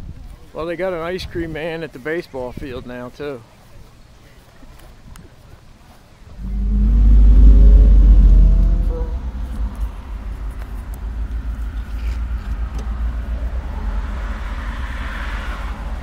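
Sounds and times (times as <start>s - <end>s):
car engine and road noise: 6.4s - 16.0s.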